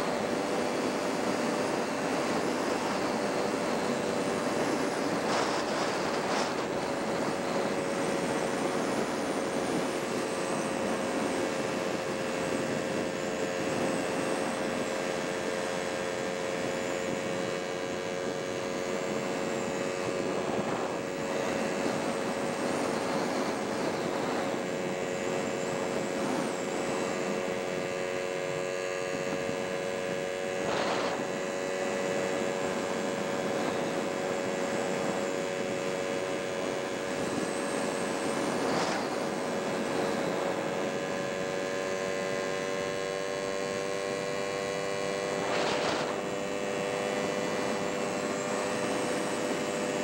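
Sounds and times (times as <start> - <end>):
road and wind noise: 0.0 - 50.0.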